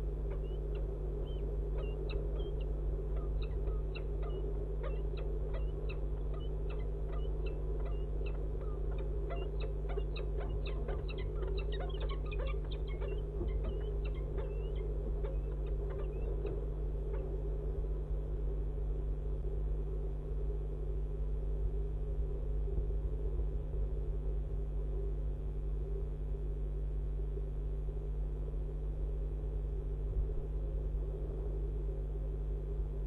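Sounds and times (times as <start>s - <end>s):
low hum and rumble: 0.0s - 33.0s
falcon calls: 0.2s - 17.4s.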